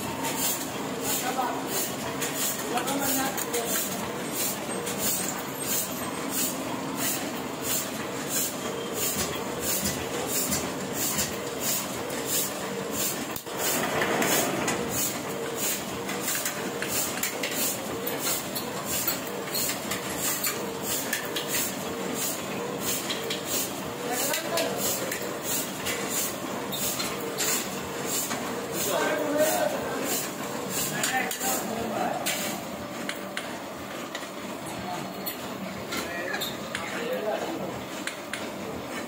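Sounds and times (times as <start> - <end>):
printing press clattering: 0.0 - 39.0.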